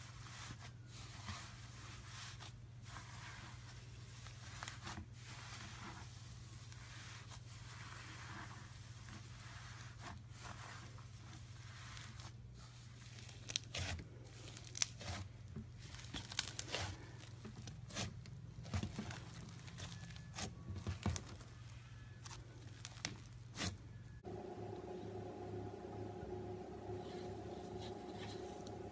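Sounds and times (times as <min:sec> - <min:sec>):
faint low hum: 0:18.3 - 0:28.9
steady tone: 0:24.2 - 0:28.9.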